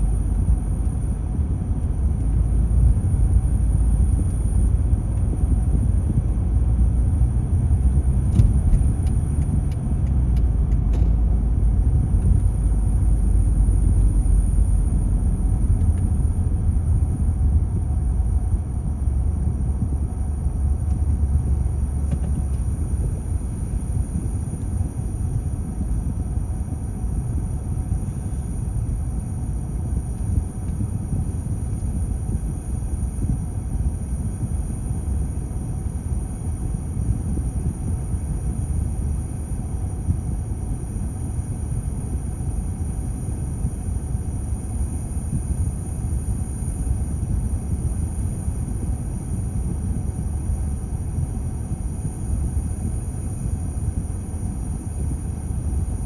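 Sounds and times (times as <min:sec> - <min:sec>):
car engine idling: 0:00.0 - 0:29.5
faint high-pitched whine: 0:00.0 - 0:56.0.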